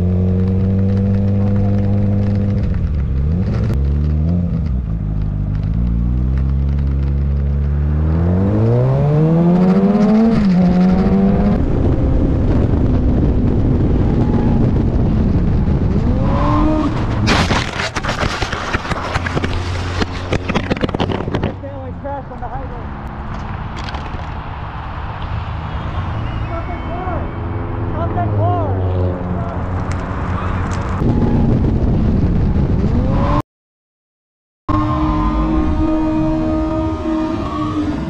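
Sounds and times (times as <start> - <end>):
motorcycle engine accelerating: 0.0 - 21.6, 34.7 - 38.0
motorcycle crashing and sliding: 16.4 - 21.6.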